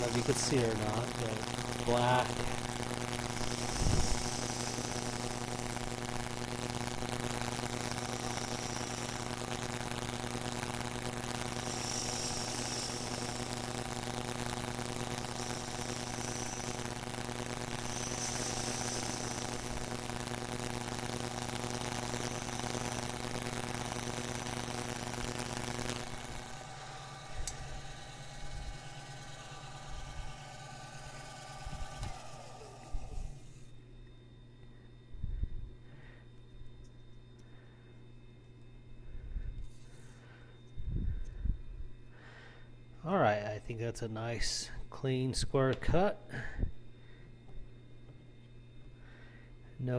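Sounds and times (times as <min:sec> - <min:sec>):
cutter scraping hiss: 0:00.0 - 0:33.8
lathe motor hum: 0:00.0 - 0:33.8.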